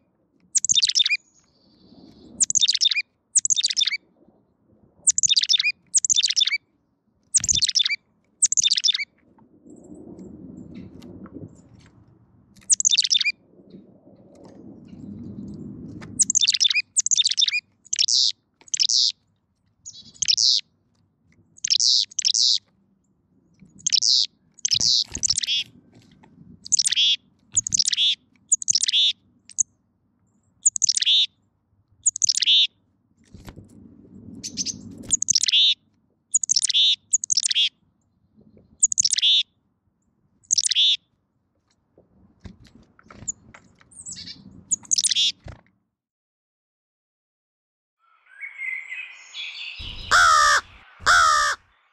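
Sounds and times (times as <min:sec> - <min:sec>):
chickadee calling: 0:00.5 - 0:01.2, 0:02.4 - 0:04.0, 0:05.1 - 0:06.6, 0:07.3 - 0:09.0, 0:12.6 - 0:13.3, 0:16.2 - 0:19.2, 0:19.9 - 0:20.6, 0:21.6 - 0:22.7, 0:23.8 - 0:25.7, 0:26.6 - 0:29.6, 0:30.6 - 0:31.3, 0:32.0 - 0:32.7, 0:34.5 - 0:37.8, 0:38.8 - 0:39.4, 0:40.5 - 0:41.0, 0:48.1 - 0:51.7
rustling near microphone: 0:24.9 - 0:28.5.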